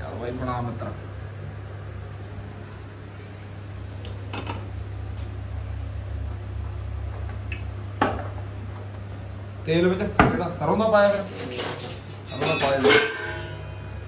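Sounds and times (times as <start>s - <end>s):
steady low hum: 0.0s - 14.0s
metal cookware clinking: 11.5s - 14.0s.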